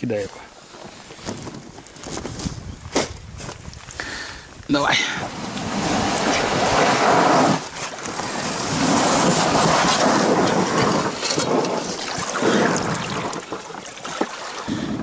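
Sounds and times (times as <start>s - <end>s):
boat hull scraping over mud: 5.0s - 15.0s.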